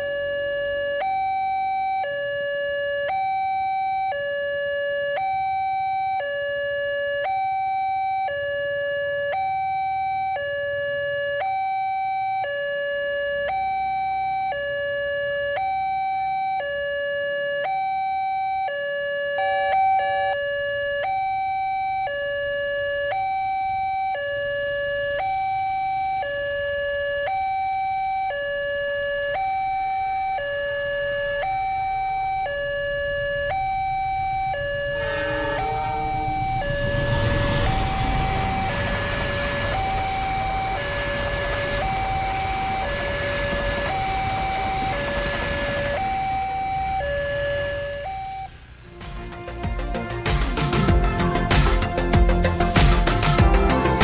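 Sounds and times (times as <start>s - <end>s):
electronic two-tone warning chime: 19.3s - 27.6s, 30.3s - 48.6s
faint rushing noise: 34.6s - 50.9s.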